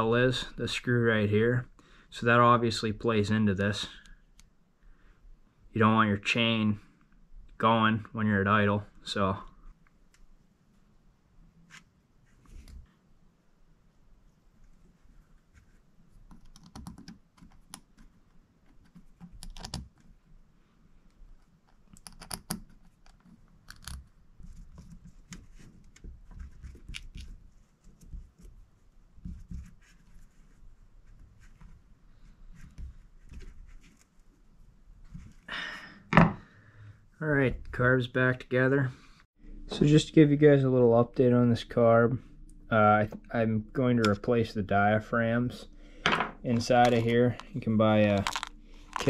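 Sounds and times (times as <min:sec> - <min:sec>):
small metal clicks and scrapes: 0:46.5 - 0:49.0.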